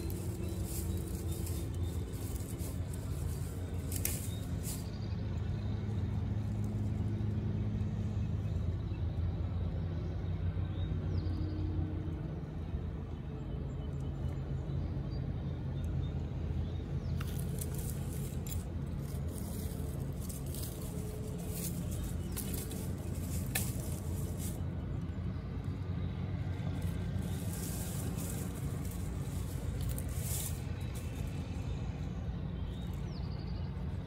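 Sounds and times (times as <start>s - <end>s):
dry leaves and twigs crackling: 0.0s - 9.8s, 16.6s - 34.0s
steady low rumble: 0.0s - 34.0s.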